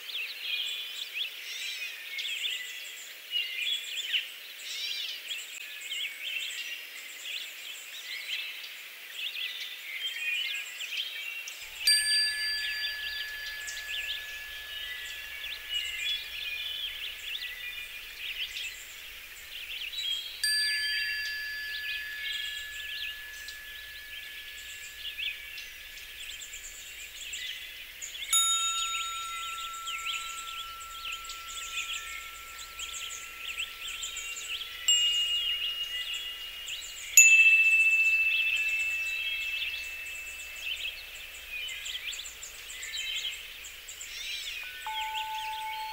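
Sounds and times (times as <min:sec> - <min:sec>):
wind chimes ringing: 0:11.6 - 0:45.9
high twittering: 0:11.7 - 0:45.9.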